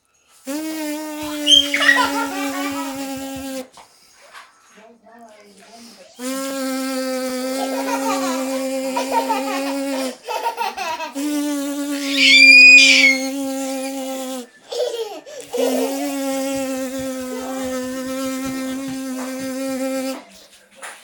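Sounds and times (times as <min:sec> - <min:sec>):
person buzzing like a bee: 0:00.5 - 0:03.7, 0:06.2 - 0:14.5, 0:15.4 - 0:20.2
toddler squealing with laughter: 0:01.3 - 0:03.0, 0:12.0 - 0:13.4.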